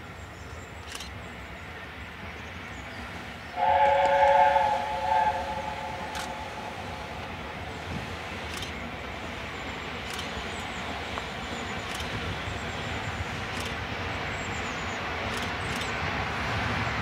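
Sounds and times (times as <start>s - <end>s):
train rumbling: 0.0s - 17.0s
steam locomotive whistle: 3.5s - 7.2s.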